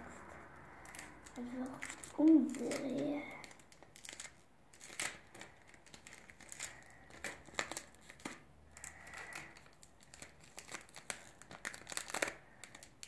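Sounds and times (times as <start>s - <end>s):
paper card rustling: 0.1s - 8.4s.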